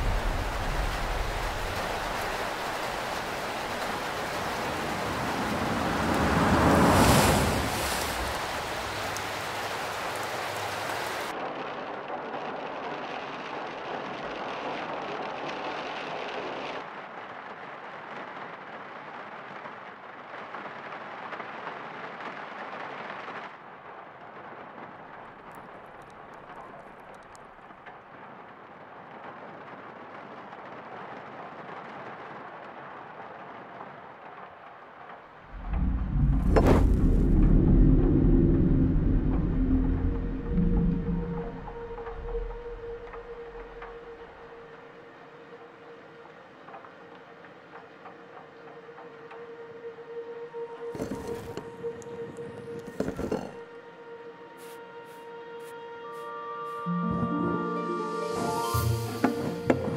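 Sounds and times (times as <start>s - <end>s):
rumble of thunder: 0.0s - 15.7s, 35.5s - 44.6s
heavy rain: 0.0s - 59.9s.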